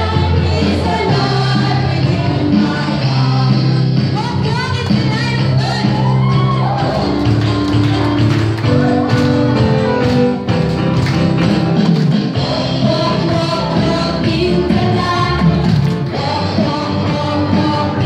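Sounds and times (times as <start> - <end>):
upbeat dance music: 0.0 - 18.0.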